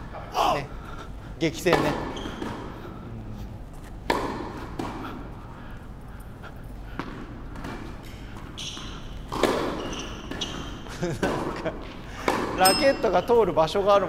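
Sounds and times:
tennis ball bouncing on court: 4.0s - 5.0s, 9.3s - 10.5s, 12.2s - 13.3s
tennis ball struck by rackets: 4.0s - 5.0s, 9.3s - 9.8s.

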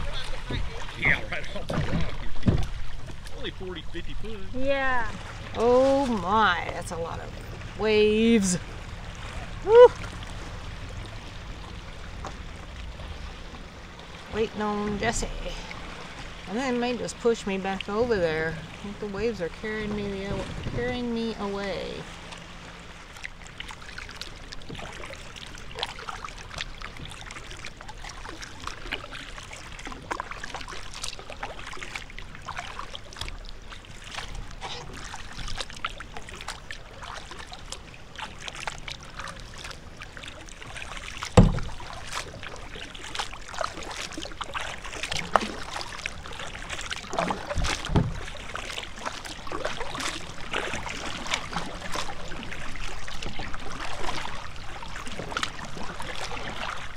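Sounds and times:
waves lapping against kayak hull: 0.0s - 56.9s
knocks on kayak hull: 1.7s - 2.9s, 41.3s - 41.8s, 47.6s - 48.2s.

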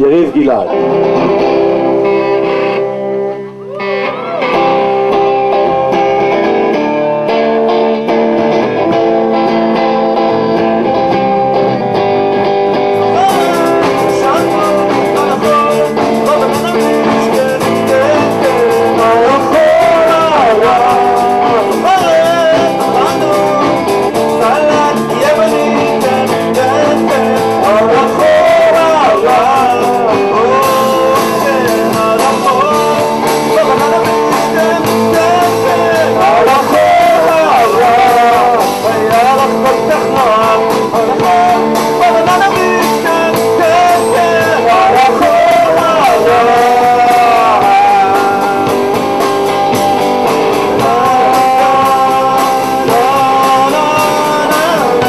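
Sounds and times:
live rock band with electric guitars: 0.0s - 55.0s
man singing lead: 12.9s - 55.0s.

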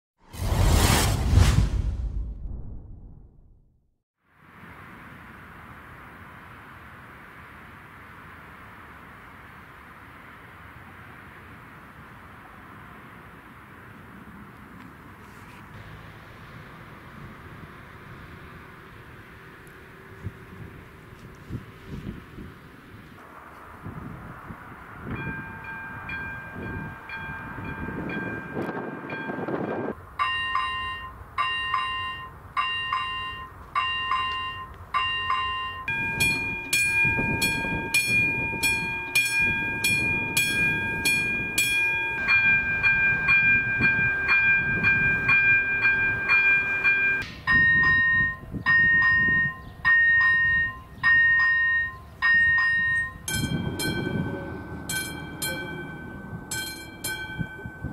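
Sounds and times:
level crossing warning bells: 24.3s - 57.9s.

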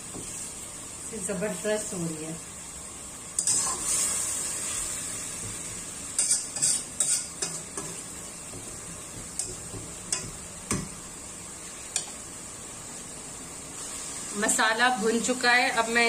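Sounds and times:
food sizzling in a pot: 0.0s - 16.0s
metal spatula scraping a pot: 3.4s - 4.2s, 6.2s - 8.0s.

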